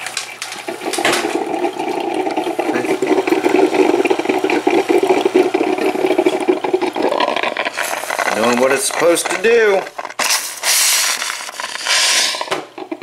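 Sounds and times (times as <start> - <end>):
coffee maker gurgling: 0.0 - 13.0.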